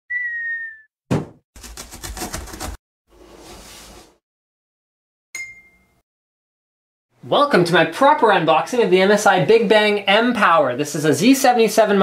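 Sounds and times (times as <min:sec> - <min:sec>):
whistle-like tone: 0:00.1 - 0:00.9
sharp thump: 0:01.1 - 0:01.4.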